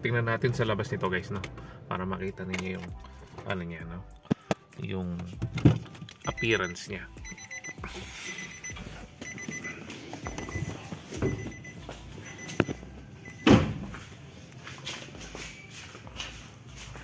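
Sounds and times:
car warning chime beeps: 6.2s - 14.0s.

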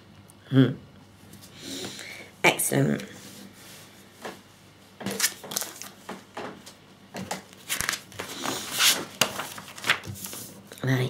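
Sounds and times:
magazine pages rustling: 5.0s - 10.6s.

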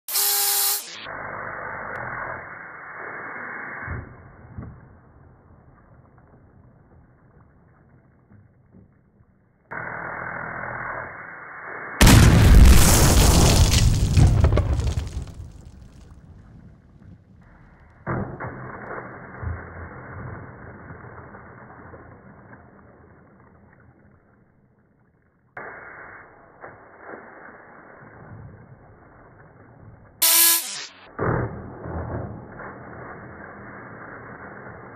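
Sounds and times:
loud air blast: 30.2s - 31.0s
short loud blip: 30.2s - 31.0s.

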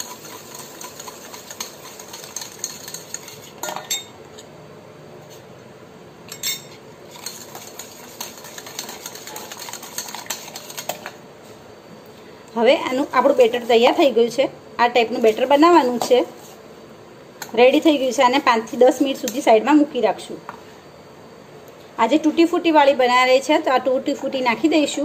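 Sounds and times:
whisk scraping metal bowl: 0.0s - 3.7s, 7.1s - 11.2s, 12.8s - 14.1s, 15.0s - 16.6s.

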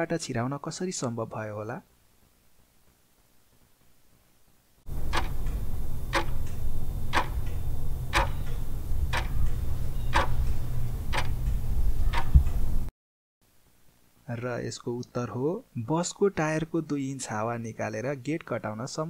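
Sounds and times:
clock ticking: 4.9s - 12.5s
steady low hum: 4.9s - 12.9s.

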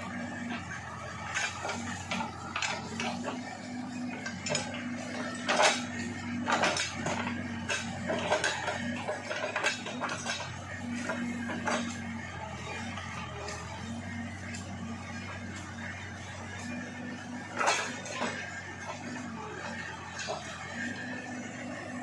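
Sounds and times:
diesel engine running: 0.0s - 22.0s
metallic clanks of digger bucket: 4.1s - 12.3s, 15.2s - 21.2s.

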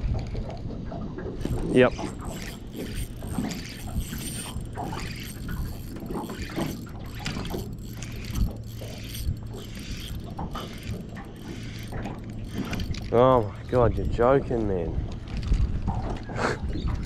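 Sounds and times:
steady low hum: 1.3s - 15.9s
fishing reel gears clicking: 1.4s - 15.6s.

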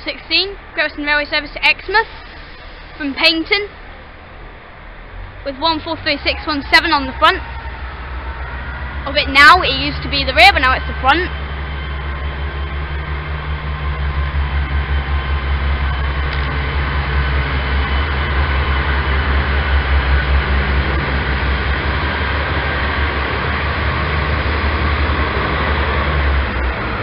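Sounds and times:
diesel train engine drone: 0.0s - 27.0s.

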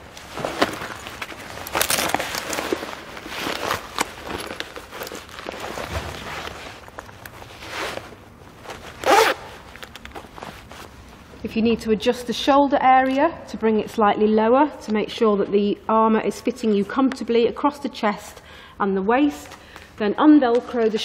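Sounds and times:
vest rustling and knocking: 0.0s - 11.0s.

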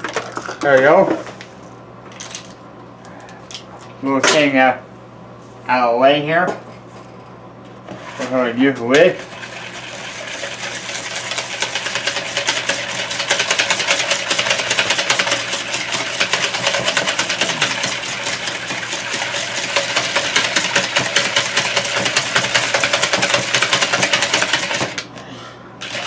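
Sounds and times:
hand whisk beating in plastic bowl: 10.4s - 25.0s.

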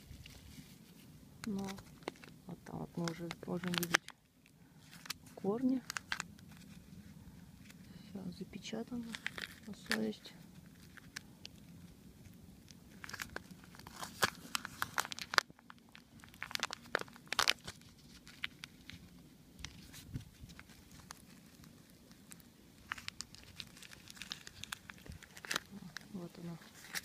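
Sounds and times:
plastic cup crinkling: 0.0s - 7.9s, 8.6s - 27.0s.

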